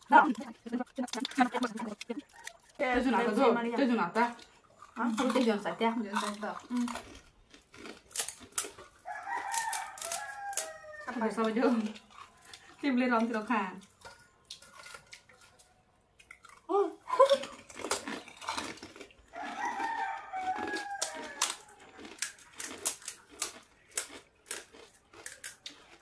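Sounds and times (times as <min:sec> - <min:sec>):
rooster clucking: 0:00.0 - 0:02.9, 0:08.9 - 0:11.5, 0:19.2 - 0:21.9
crisp shells cracking: 0:06.2 - 0:12.7, 0:17.3 - 0:26.0
rooster crowing: 0:09.0 - 0:11.4, 0:19.3 - 0:22.0.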